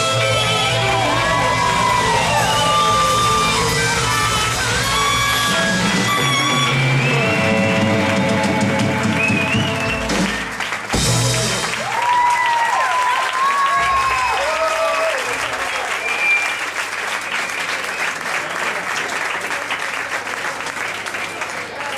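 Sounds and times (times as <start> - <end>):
amplified harmonica: 0.0 - 10.6
saxophone: 0.0 - 10.6
live funk band playing: 0.0 - 11.9.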